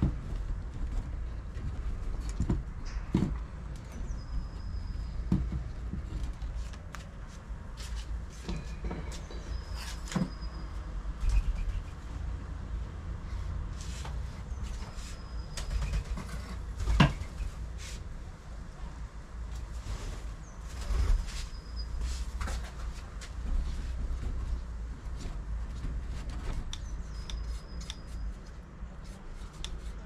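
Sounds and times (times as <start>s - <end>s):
thin high whistles: 26.8s - 28.5s.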